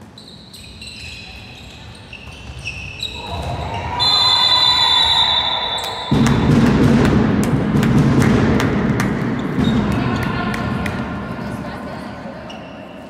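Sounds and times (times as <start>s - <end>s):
shoes squeaking on floor: 0.0s - 4.2s, 12.4s - 13.0s
ball bouncing: 6.1s - 11.1s.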